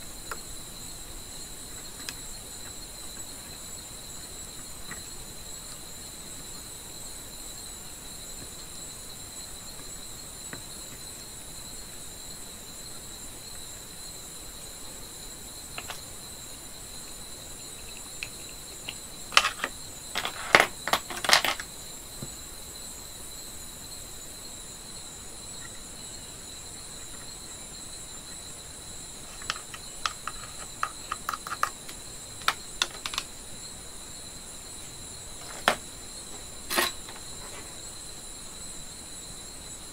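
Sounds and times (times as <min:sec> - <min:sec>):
steady high-pitched whine: 0:00.0 - 0:39.9
metal tin clicking and clattering: 0:36.7 - 0:37.2.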